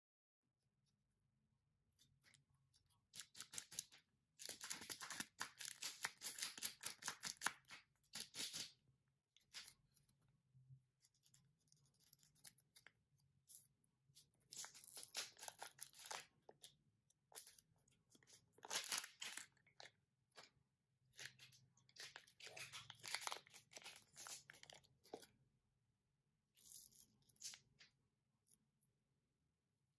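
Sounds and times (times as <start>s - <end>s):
plastic wrapper crinkling and tearing: 3.2s - 8.8s, 14.5s - 20.5s, 21.1s - 25.3s.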